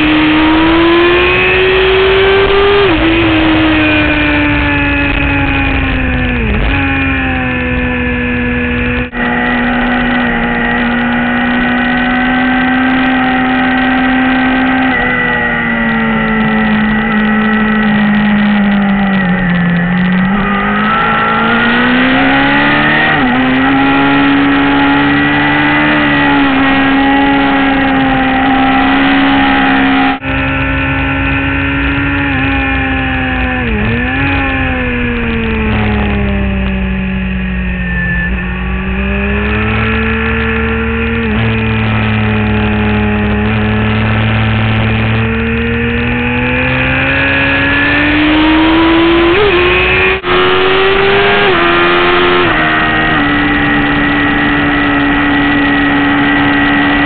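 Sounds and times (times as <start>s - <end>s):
motorcycle engine at high revs: 0.0s - 57.0s
wind rush: 1.2s - 10.6s.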